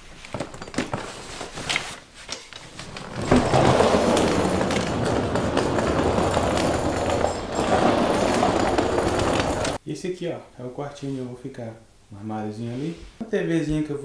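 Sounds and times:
clicks and knocks: 2.7s - 9.8s
dense rumbling rustle: 2.8s - 9.8s.

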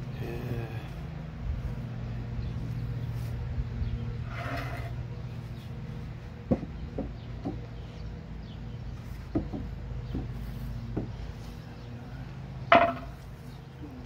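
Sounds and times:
steady low hum: 0.0s - 14.0s
sharp knocks: 6.5s - 7.6s, 9.3s - 11.2s, 12.7s - 13.2s.

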